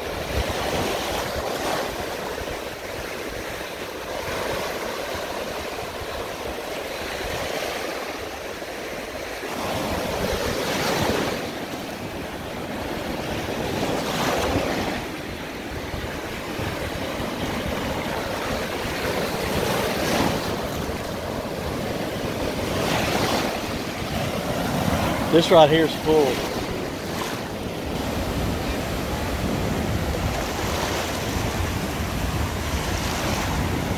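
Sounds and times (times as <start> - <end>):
surf breaking on beach: 0.0 - 33.9
wind rumbling on microphone: 9.7 - 25.4, 26.4 - 33.9.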